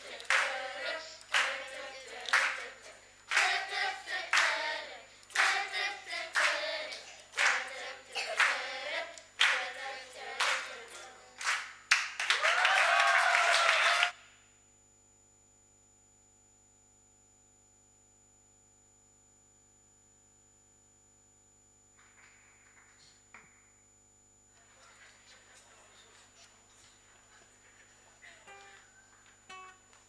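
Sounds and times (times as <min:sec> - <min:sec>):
applause: 0:00.0 - 0:04.7, 0:05.3 - 0:08.8, 0:09.4 - 0:14.2, 0:22.0 - 0:23.6, 0:24.7 - 0:30.0
children's choir singing: 0:00.0 - 0:14.1
rhythmic clapping: 0:00.0 - 0:14.2, 0:22.0 - 0:23.8, 0:24.6 - 0:30.0.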